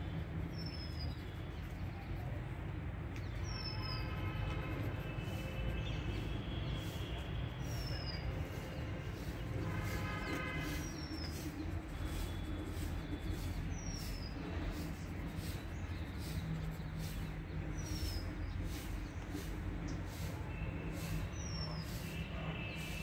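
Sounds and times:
bird chirping: 5.1 - 20.0.

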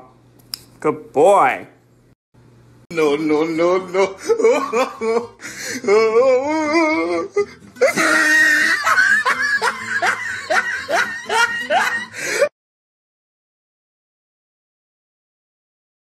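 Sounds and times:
music: 3.2 - 12.5
hearty laughter: 4.0 - 6.1, 7.4 - 12.5.

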